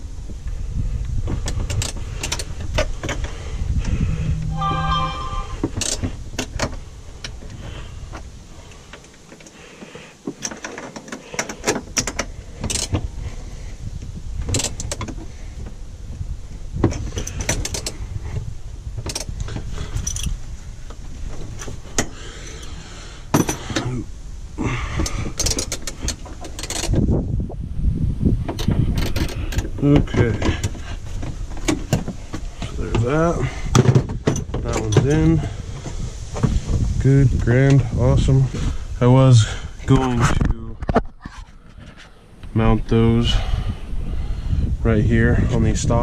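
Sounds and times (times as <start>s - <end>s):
brief squeak: 4.1s - 5.8s.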